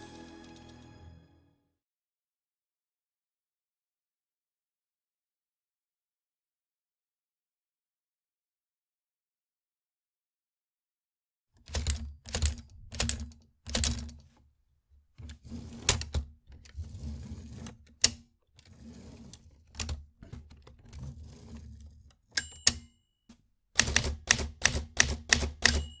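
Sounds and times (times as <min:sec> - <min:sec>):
typewriter keys striking: 0:11.6 - 0:14.2, 0:23.8 - 0:26.0
typewriter mechanical noise: 0:11.6 - 0:14.2, 0:23.8 - 0:26.0
typewriter margin bell ding: 0:22.4 - 0:23.0, 0:25.4 - 0:26.0.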